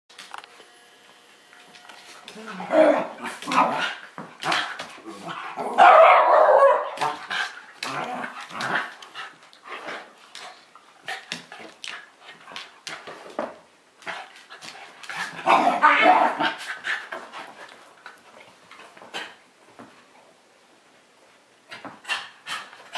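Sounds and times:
dogs barking and yipping: 0:05.7 - 0:07.0.

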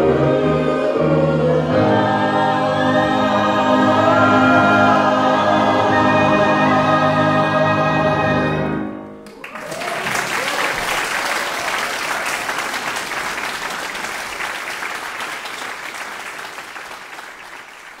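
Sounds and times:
choir holding chord: 0:00.0 - 0:09.2
audience applause: 0:09.2 - 0:18.0.

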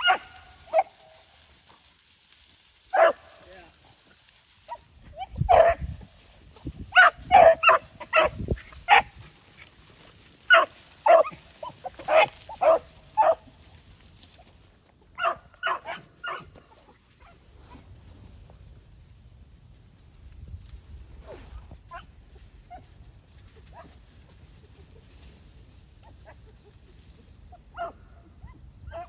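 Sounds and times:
dogs baying: 0:00.0 - 0:01.1, 0:06.9 - 0:09.6, 0:10.5 - 0:13.4.

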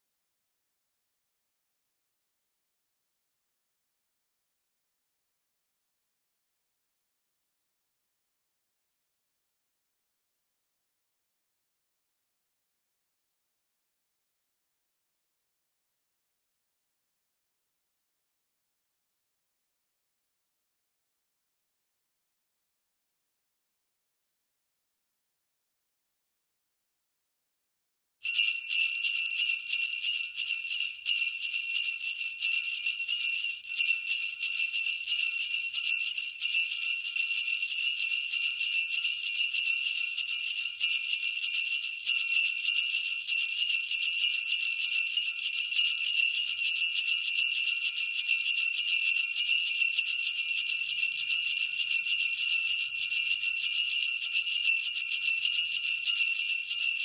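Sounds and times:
sleigh bells jingling: 0:28.2 - 0:57.0.

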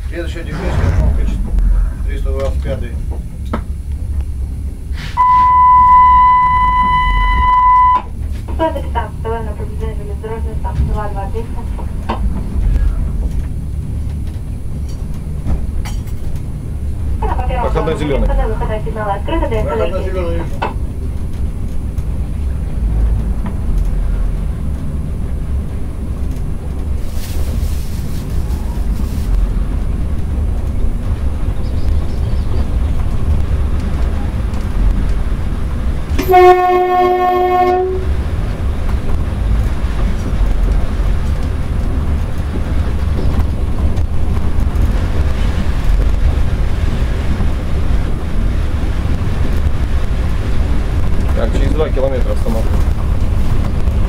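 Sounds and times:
train wheels rumbling: 0:00.0 - 0:54.0
train horn: 0:05.2 - 0:08.1, 0:36.2 - 0:38.2.

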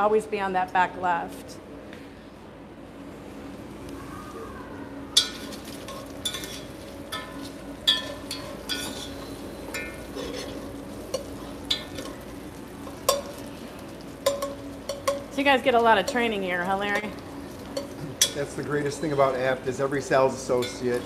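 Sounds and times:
spoon scraping and clinking pot: 0:05.2 - 0:12.2
bacon sizzling in a pot: 0:05.2 - 0:21.0.

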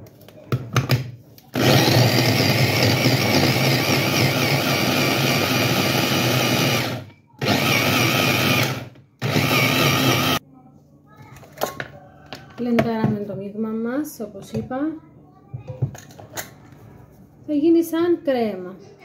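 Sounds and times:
electric mini chopper running: 0:06.0 - 0:10.4.

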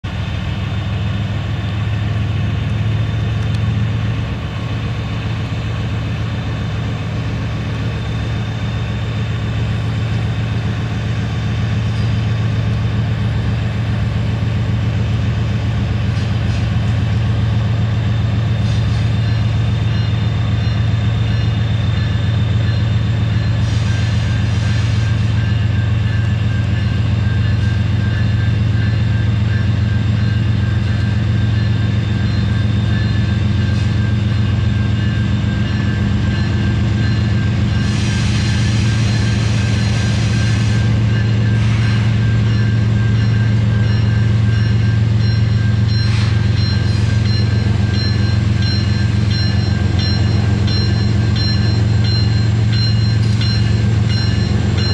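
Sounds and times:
diesel locomotive engine drone: 0:00.0 - 0:54.9.

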